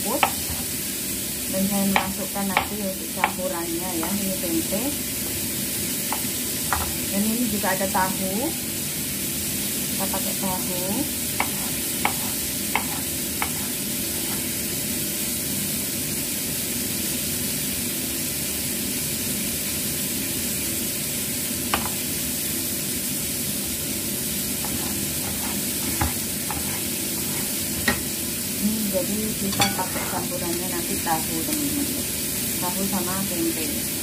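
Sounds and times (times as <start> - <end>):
fish deep-frying in oil: 0.0 - 34.0
knife taps on wooden board: 6.1 - 7.0.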